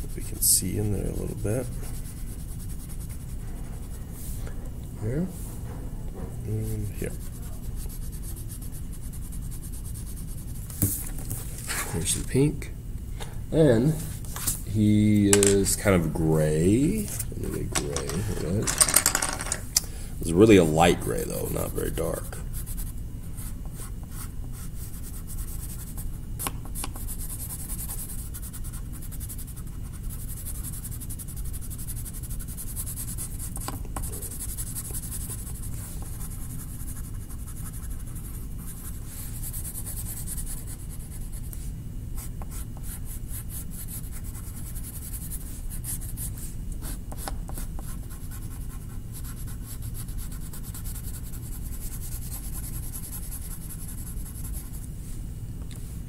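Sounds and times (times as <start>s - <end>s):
steady low hum: 0.0s - 56.0s
drawing tool scratching on paper: 6.5s - 10.9s, 42.2s - 54.8s.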